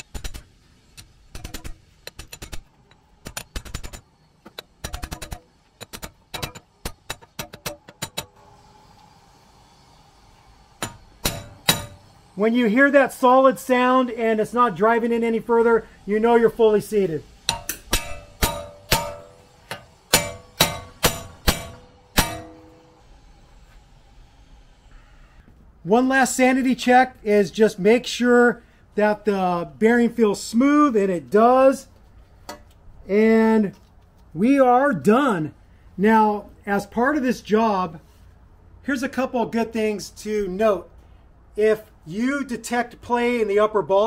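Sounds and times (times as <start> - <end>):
hammer on steel plate: 10.8 - 12.0, 17.5 - 23.0
steel plate ringing: 10.8 - 12.1, 17.4 - 23.1.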